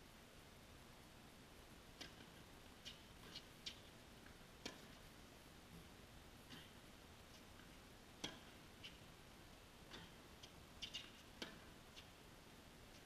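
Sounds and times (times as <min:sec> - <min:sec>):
ball bouncing on hard court: 0:02.0 - 0:03.8, 0:04.6 - 0:05.0, 0:07.6 - 0:09.0, 0:09.9 - 0:12.1
tennis ball struck by rackets: 0:04.6 - 0:05.0, 0:08.2 - 0:09.0, 0:10.8 - 0:11.8.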